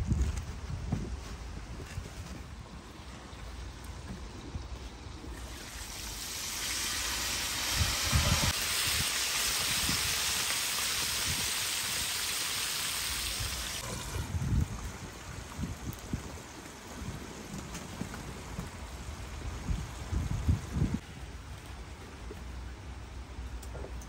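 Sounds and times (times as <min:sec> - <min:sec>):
chicken frying in hot oil: 0:05.3 - 0:17.7.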